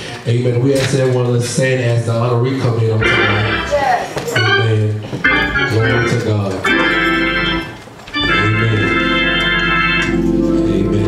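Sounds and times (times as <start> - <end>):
organ sustained chords: 2.9 - 11.0.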